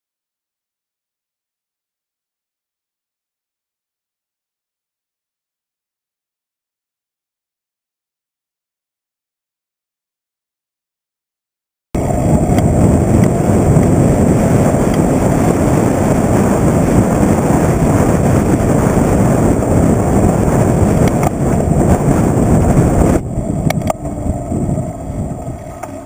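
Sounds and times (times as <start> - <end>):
wind buffeting microphone: 12.0 - 26.0.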